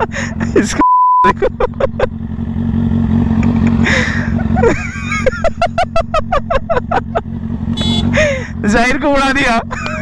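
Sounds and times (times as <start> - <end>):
people laughing: 0.0 - 2.2, 3.8 - 7.3, 9.7 - 10.0
motorcycle engines idling: 0.0 - 10.0.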